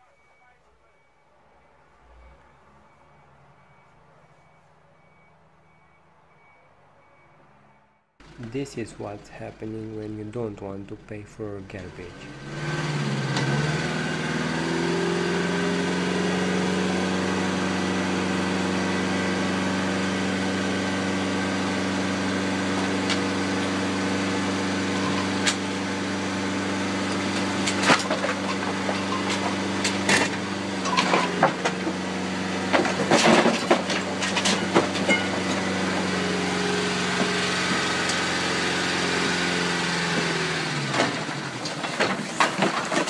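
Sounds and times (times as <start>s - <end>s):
lorry engine humming: 0.0s - 43.0s
metal clanks and knocks: 27.6s - 32.0s, 32.7s - 36.0s.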